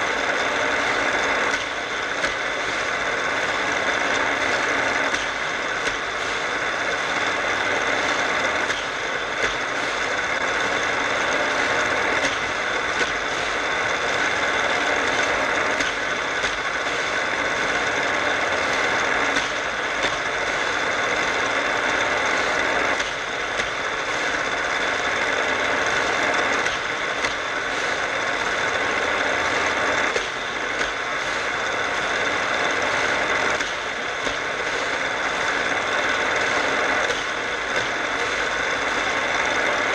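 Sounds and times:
toy cars rolling on plastic track: 0.0 - 39.9
toy track booster motor humming: 0.0 - 39.9.

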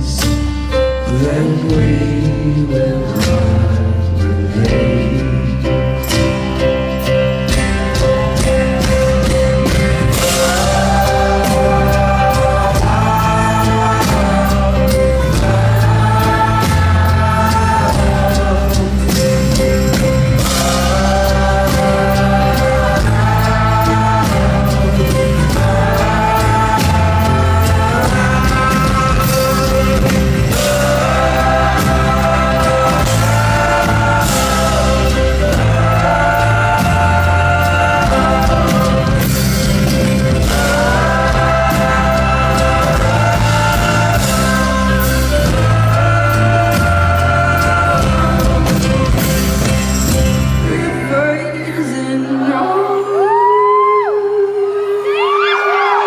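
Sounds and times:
acoustic guitar: 0.0 - 53.4
voices singing harmonies: 7.4 - 56.0
drum beat: 7.5 - 50.6
crowd cheering and whooping: 50.7 - 56.0.

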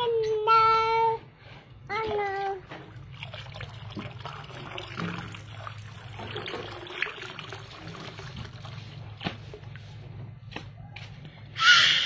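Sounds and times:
water trickling from a hose: 2.7 - 9.3.

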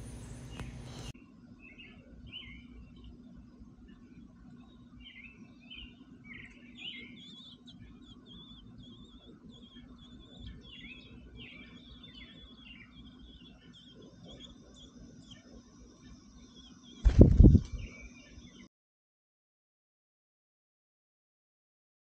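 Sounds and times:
birds chirping at nest: 0.0 - 1.1, 1.8 - 18.7.

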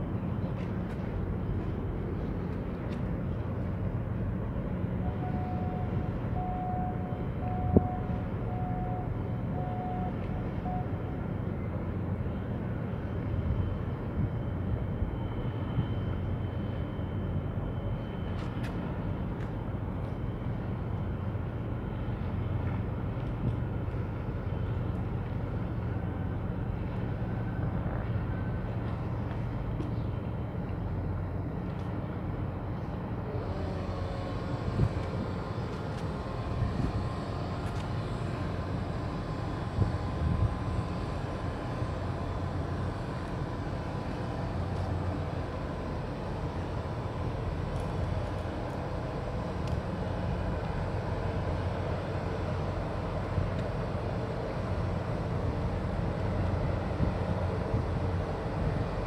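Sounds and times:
ship machinery rumble: 0.0 - 59.0
short beeps: 5.0 - 11.1.

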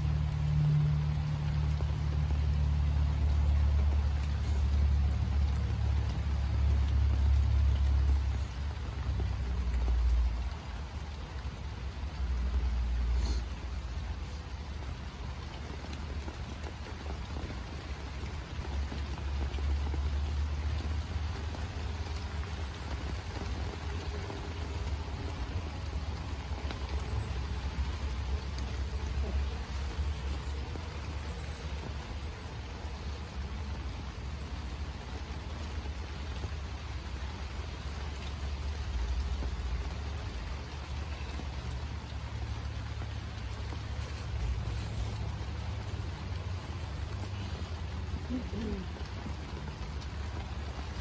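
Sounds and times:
rain pattering on a tent: 0.0 - 51.0.

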